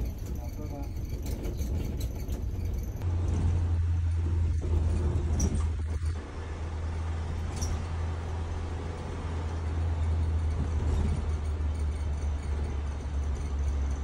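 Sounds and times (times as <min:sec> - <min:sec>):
faint rattles: 0:00.0 - 0:14.0
minibus engine and road drone: 0:00.0 - 0:14.0.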